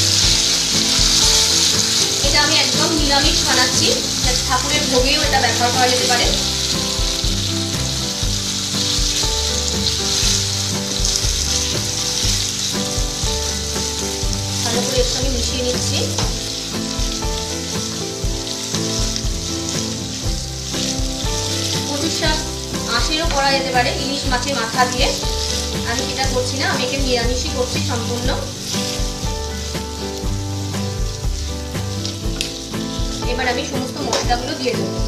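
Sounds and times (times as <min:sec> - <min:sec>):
spatula stirring in pan: 0:00.0 - 0:34.6
background music tones: 0:00.0 - 0:35.0
vegetables sizzling in oil: 0:00.0 - 0:35.0.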